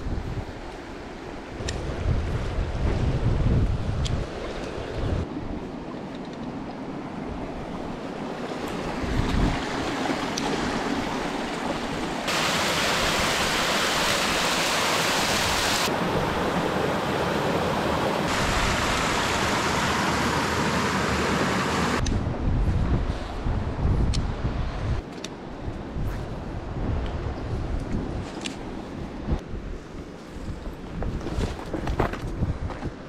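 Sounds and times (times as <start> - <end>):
wind: 0.0 - 33.0
water running over rocks: 8.5 - 15.9, 17.0 - 22.0
waterfall rushing: 9.6 - 22.0.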